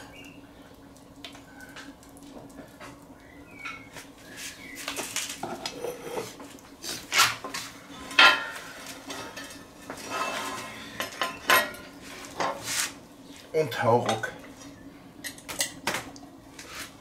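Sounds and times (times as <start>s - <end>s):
iron clanking and scraping on metal: 8.0s - 12.7s.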